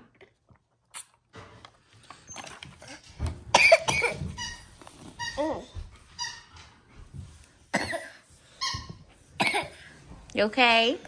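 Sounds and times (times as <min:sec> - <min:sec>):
person coughing: 0:03.6 - 0:04.2, 0:07.7 - 0:08.2, 0:09.4 - 0:09.8
short high-pitched squeaks: 0:04.4 - 0:06.7.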